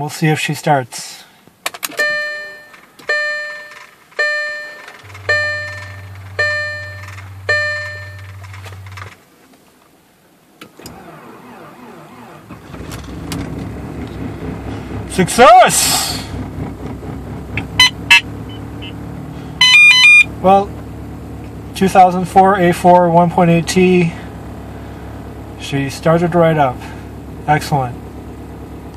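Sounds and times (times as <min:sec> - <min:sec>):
car engine cranking and starting: 0:01.5 - 0:28.9
car warning gong chiming: 0:02.0 - 0:09.1
steady low hum: 0:04.3 - 0:09.3, 0:10.4 - 0:28.9.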